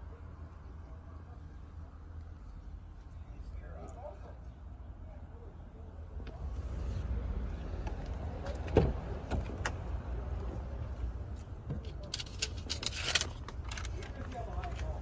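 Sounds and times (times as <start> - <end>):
rustling handling noise: 11.8 - 15.0.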